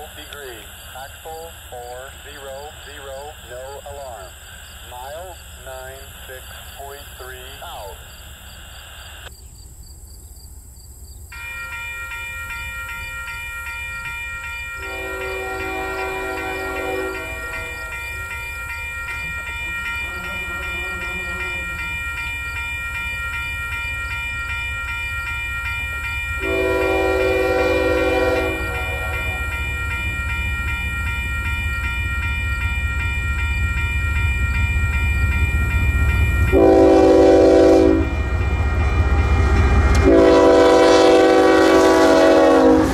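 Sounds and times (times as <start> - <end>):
locomotive air horn blasts: 14.8 - 17.9, 26.4 - 29.6, 36.5 - 38.3, 40.0 - 42.9.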